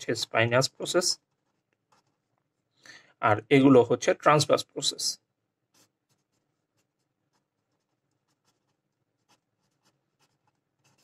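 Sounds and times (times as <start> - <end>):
pen scratching on paper: 1.2 - 2.4, 5.7 - 11.0.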